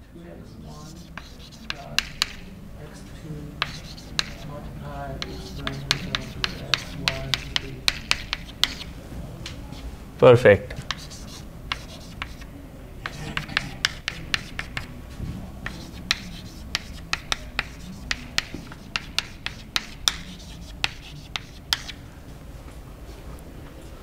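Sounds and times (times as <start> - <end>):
chalk tapping and scraping on blackboard: 0.4 - 8.9, 10.7 - 15.0, 15.6 - 22.0.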